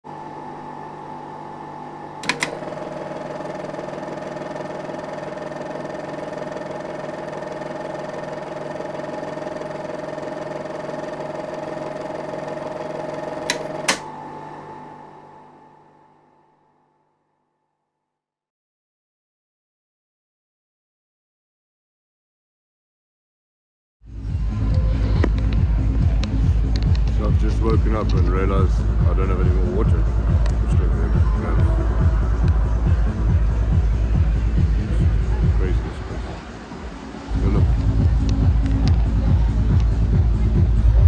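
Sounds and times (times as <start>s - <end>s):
machine hum: 0.0s - 16.7s, 24.1s - 41.0s
switch clicks: 2.2s - 2.6s, 13.4s - 14.1s.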